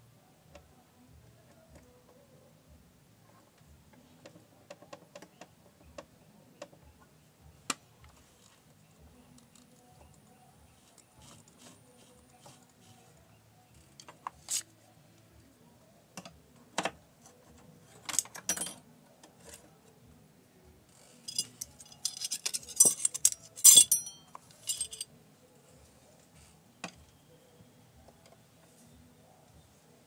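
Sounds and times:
metal parts and tools clinking: 17.9 - 18.8, 21.1 - 25.1.

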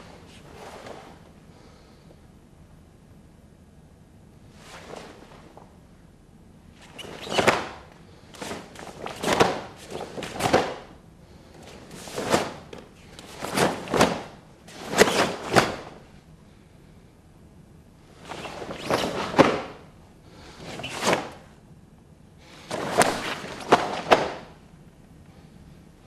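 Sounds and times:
feet striking floor: 22.7 - 24.6.

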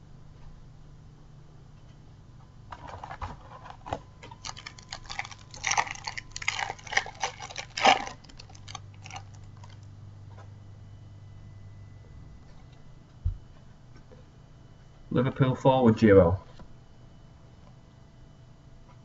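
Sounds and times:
wrapper crinkling and crackling: 4.2 - 9.9.

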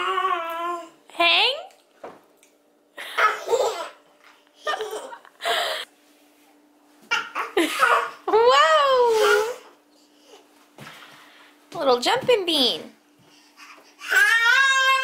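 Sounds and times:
toddler laughing and babbling: 7.1 - 8.4, 13.6 - 15.0
toddler high squeal: 14.0 - 15.0.

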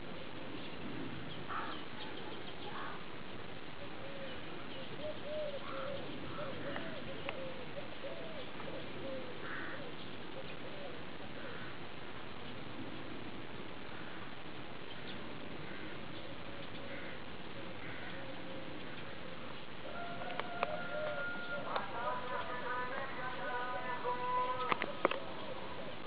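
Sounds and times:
outdoor background hiss: 0.0 - 26.0
wavering animal call: 17.8 - 26.0.

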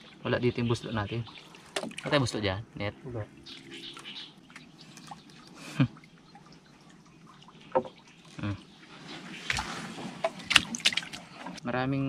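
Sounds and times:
water dripping: 0.0 - 11.4
hand splashing water: 9.4 - 11.4.

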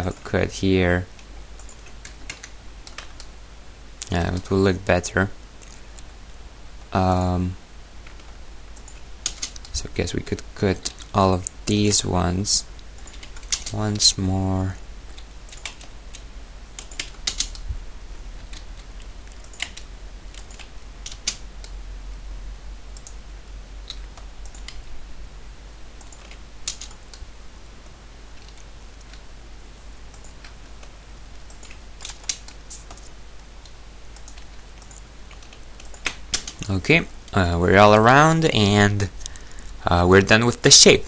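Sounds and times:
low steady hum: 0.0 - 41.0
computer keyboard clicks: 1.6 - 3.3, 8.0 - 9.7, 13.0 - 13.8, 15.1 - 16.2, 16.8 - 17.6, 18.4 - 21.7, 23.9 - 24.8, 26.0 - 27.2, 31.5 - 36.7.

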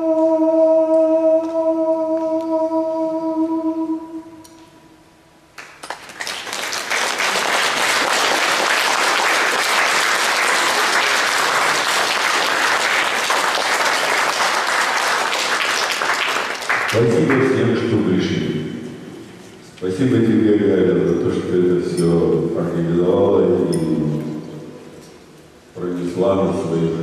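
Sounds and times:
audience applause: 5.6 - 17.6.

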